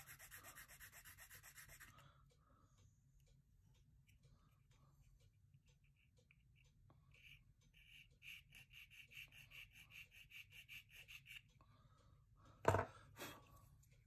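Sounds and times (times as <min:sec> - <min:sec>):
plastic part knocking: 0:12.7 - 0:12.9.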